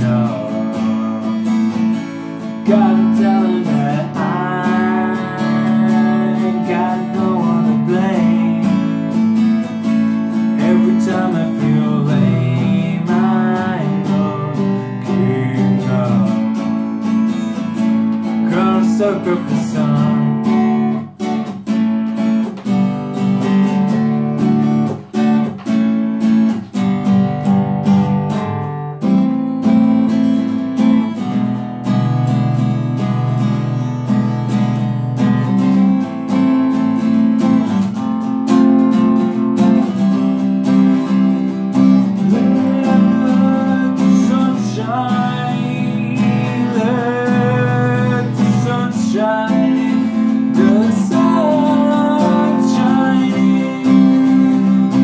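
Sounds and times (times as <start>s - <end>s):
man singing: 0.0s - 17.2s, 18.0s - 21.2s, 41.1s - 55.0s
acoustic guitar strumming: 0.0s - 55.0s.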